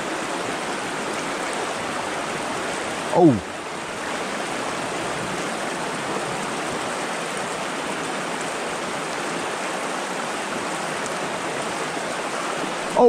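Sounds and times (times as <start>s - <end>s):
creek water rushing over stones: 0.0s - 13.0s.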